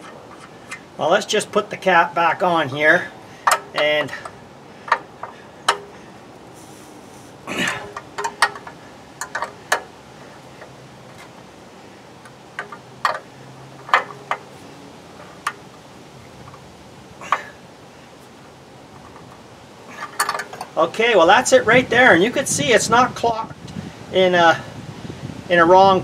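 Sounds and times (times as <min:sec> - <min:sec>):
metal clicks and clinks: 0:03.4 - 0:06.0, 0:07.6 - 0:10.0, 0:12.2 - 0:14.6, 0:20.0 - 0:20.8.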